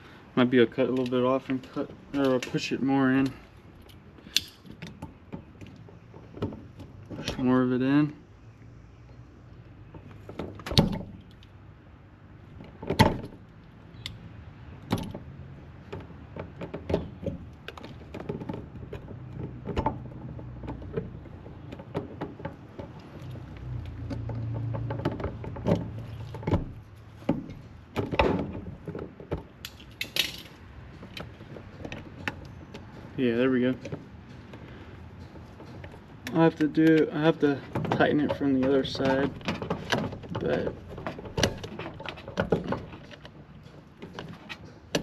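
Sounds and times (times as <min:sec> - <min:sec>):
wires and metal parts rattling: 0:00.4 - 0:08.2, 0:12.4 - 0:45.0.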